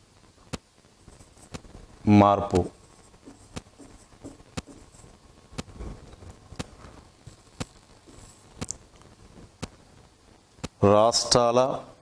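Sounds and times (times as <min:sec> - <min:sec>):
soft rustles: 0:01.0 - 0:09.6.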